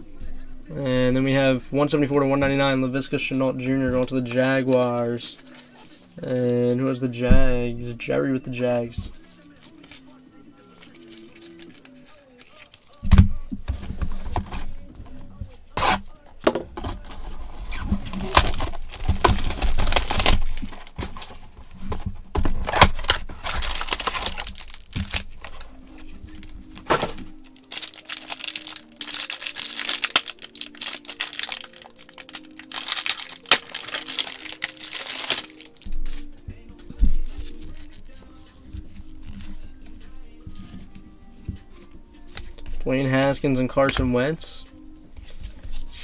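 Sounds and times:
foil wrapper crinkling and tearing: 10.8 - 13.0, 16.8 - 21.5, 22.5 - 36.3, 37.3 - 39.6.

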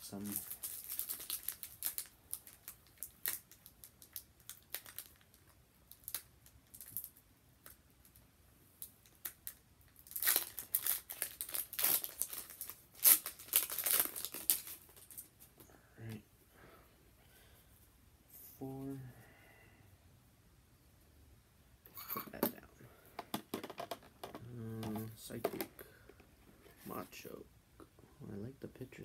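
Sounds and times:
foil wrapper crinkling and tearing: 0.0 - 7.2, 9.0 - 15.3.

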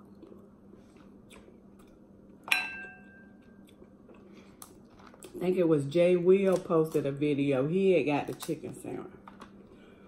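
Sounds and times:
quiet chewing with mouth clicks: 0.0 - 2.4, 3.6 - 5.4
low steady hum: 0.0 - 10.0.

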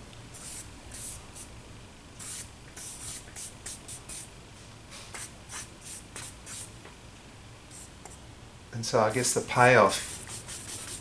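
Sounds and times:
charcoal scratching on paper: 0.4 - 1.5, 2.2 - 4.3, 5.2 - 6.7, 9.9 - 11.0.

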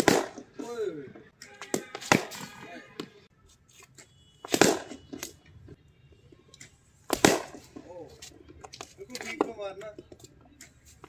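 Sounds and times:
cricket bat striking ball: 0.0 - 0.5, 1.6 - 3.2, 4.5 - 5.4, 7.1 - 7.8.

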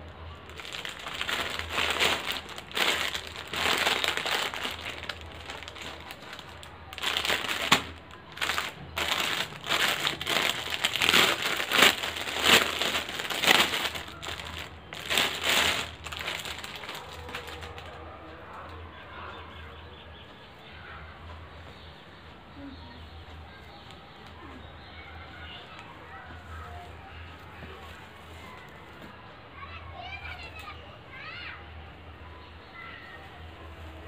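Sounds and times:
plastic packaging crinkling: 0.4 - 17.9.

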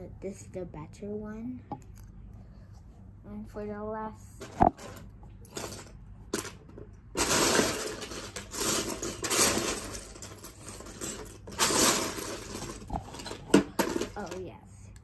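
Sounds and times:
plastic bricks clattering: 4.6 - 14.5.

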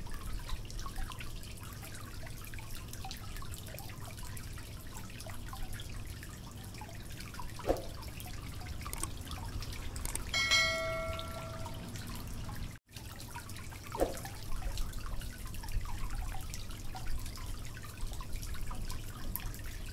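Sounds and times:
faint drip-like clicks: 0.0 - 19.9
low hum: 10.1 - 12.3
bell-like notification chime: 10.4 - 11.9.

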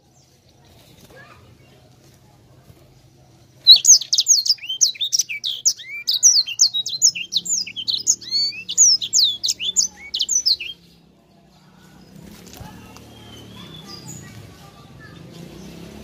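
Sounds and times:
finch singing: 3.3 - 11.0, 11.7 - 16.0.

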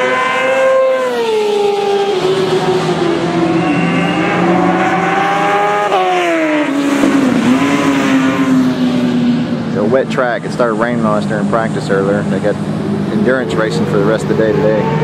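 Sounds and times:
motorcycle engine passing at speed: 0.0 - 10.0.

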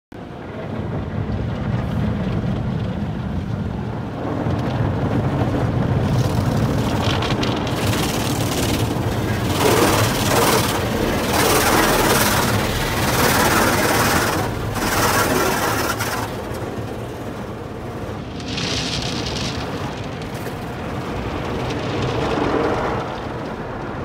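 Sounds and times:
car wash low rumble: 0.2 - 24.0
water spray hissing on car: 6.3 - 22.7.

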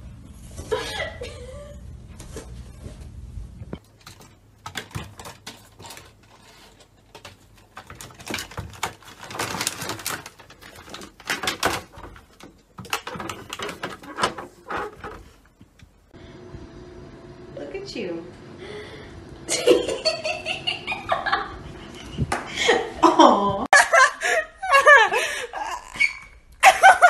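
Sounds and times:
treat bag crinkling: 3.8 - 15.2
plastic cat flap rattling: 3.9 - 15.4.

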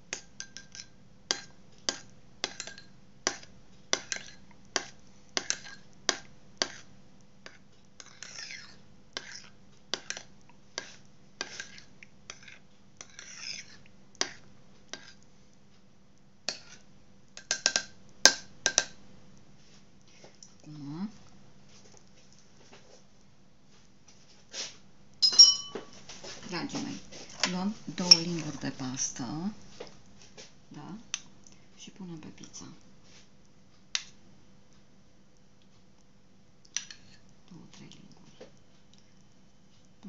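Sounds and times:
spoon scraping bowl: 2.4 - 6.9, 7.5 - 15.2, 16.5 - 16.9, 27.9 - 29.2
spoon clinking against ceramic bowl: 25.2 - 26.0.

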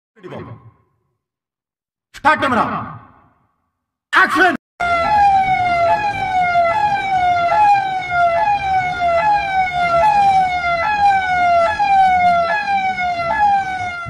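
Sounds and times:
siren sound effect: 0.2 - 1.2, 4.8 - 14.0.

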